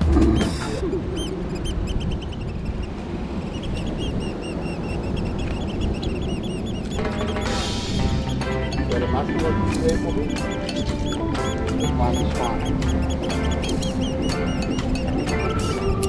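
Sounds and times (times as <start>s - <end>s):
bird chirping: 0.1s - 16.0s
low rushing noise: 6.9s - 16.0s.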